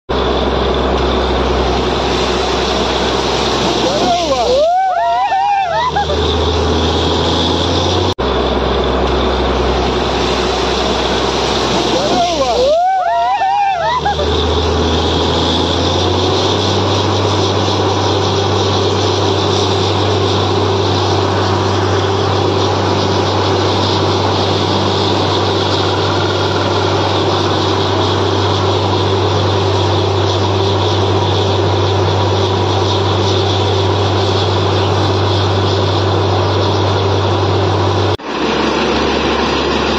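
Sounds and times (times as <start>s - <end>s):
drilling rig drone: 0.1s - 39.9s
water and air rushing hiss: 0.2s - 36.9s
wavering pitched call: 2.5s - 6.8s, 11.1s - 15.9s.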